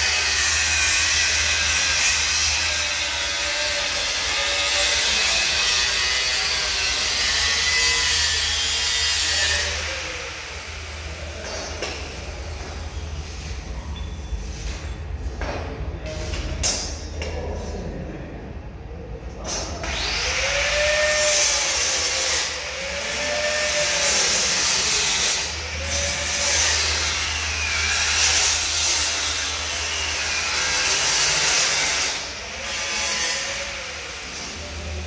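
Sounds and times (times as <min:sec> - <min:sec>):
angle grinder cutting steel: 0:00.0 - 0:12.1, 0:19.8 - 0:35.0.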